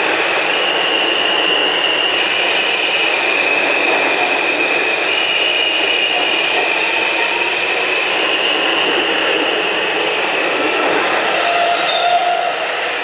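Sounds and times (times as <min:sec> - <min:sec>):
train wheels rumbling on rail: 0:00.0 - 0:13.0
high wheel squeal: 0:11.1 - 0:13.0.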